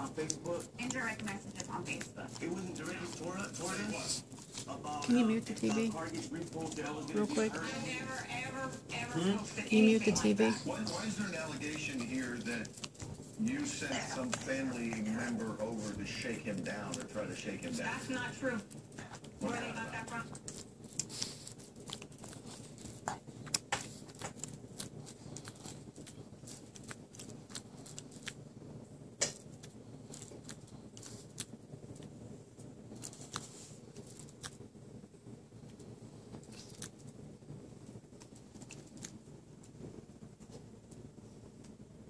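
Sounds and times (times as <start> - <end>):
dog suckling wet clicks: 0.1 - 7.1, 11.5 - 13.4, 14.2 - 19.4, 20.0 - 28.5.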